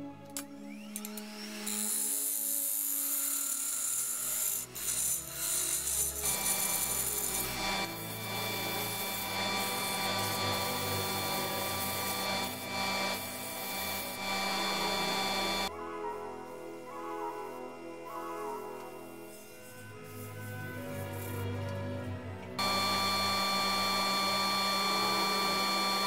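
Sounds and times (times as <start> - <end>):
sandpaper hissing on turning wood: 1.7 - 15.7, 18.4 - 21.6
lathe machine hum: 4.4 - 15.7, 22.6 - 26.0.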